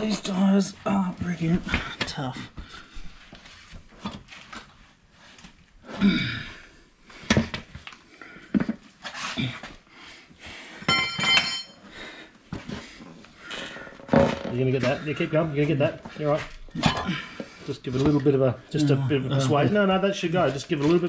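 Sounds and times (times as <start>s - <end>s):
breaths and grunts of effort: 5.8s - 11.1s, 11.7s - 19.8s
ringing metal clink: 10.9s - 11.8s.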